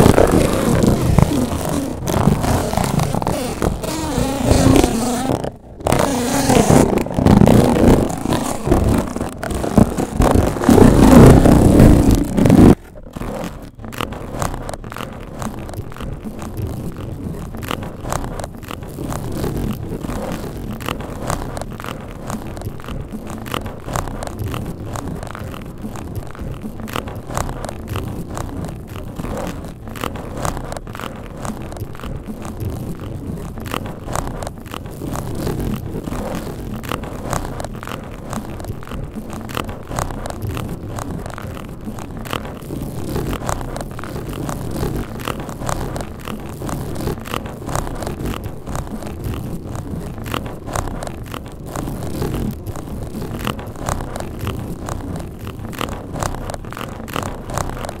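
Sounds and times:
low rumble: 0.0 - 20.1
beetle feet ticking and scratching: 0.0 - 58.0
low rumble of microphone noise: 0.0 - 58.0.

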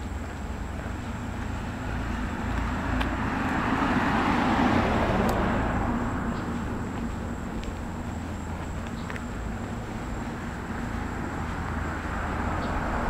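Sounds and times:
car passing by: 1.3 - 7.4, 9.5 - 13.0.

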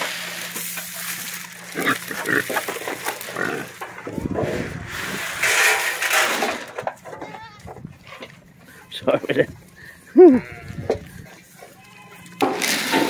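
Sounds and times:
pigs grunting: 1.6 - 5.1.

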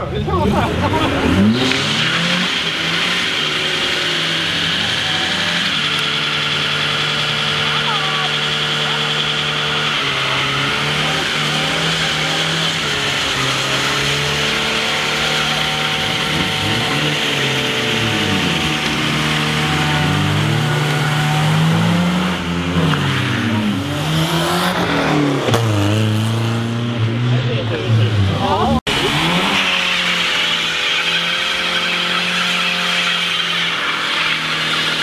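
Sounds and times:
car engines revving: 0.0 - 35.0.

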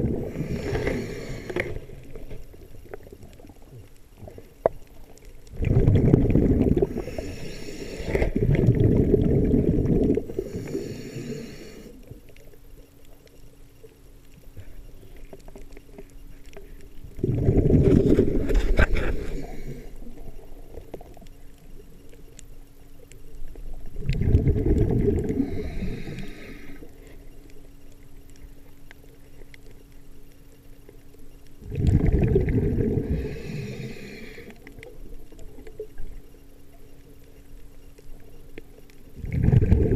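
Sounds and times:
rushing bubbles from diver: 5.5 - 7.0, 8.4 - 10.3, 17.2 - 18.4, 24.0 - 25.5, 31.6 - 33.1, 39.2 - 39.9.

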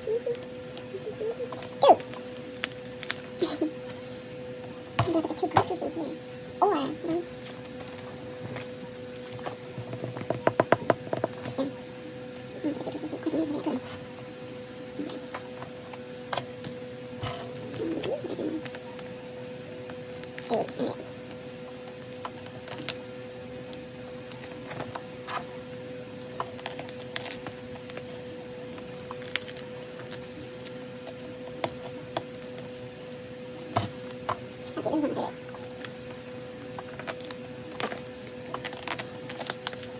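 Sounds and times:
faint steady hum: 0.0 - 39.9
card crinkling against plastic: 35.6 - 39.9.

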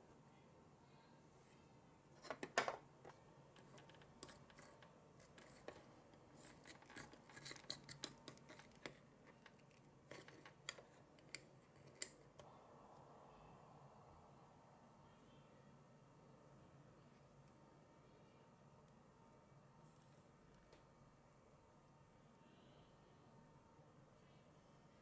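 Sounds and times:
plastic clatter: 2.2 - 5.8
plastic spoon scraping bowl: 3.6 - 10.8.

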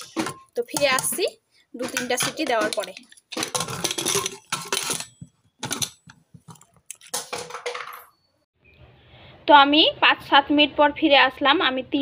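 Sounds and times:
metal lid scraping and clinking: 0.0 - 8.2.

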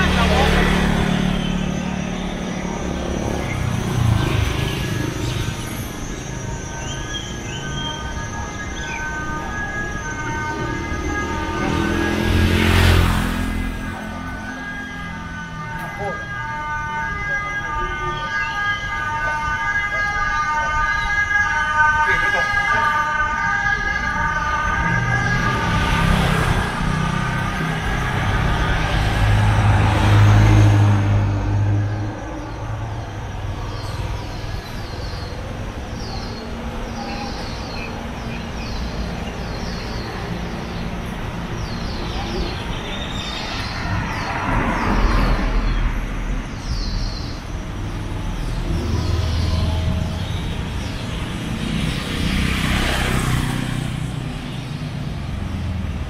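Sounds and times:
road traffic rumble: 0.0 - 56.0
vehicles passing: 0.0 - 56.0.

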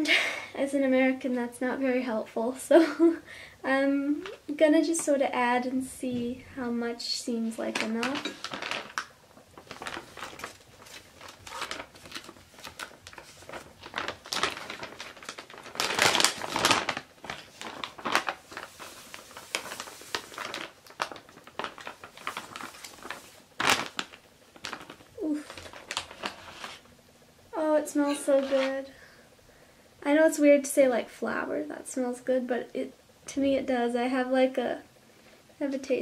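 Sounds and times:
plastic bag crinkling: 4.1 - 5.5, 6.2 - 26.9, 27.6 - 28.9.

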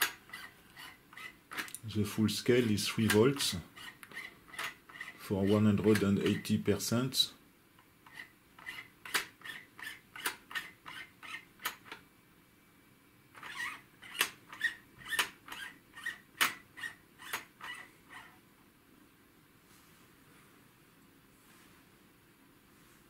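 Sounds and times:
dial squeaky clicks: 3.0 - 5.2, 13.4 - 18.3.

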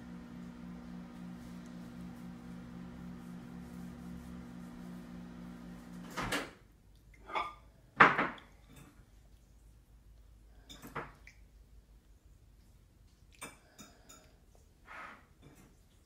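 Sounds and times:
steady low hum: 0.0 - 6.1.

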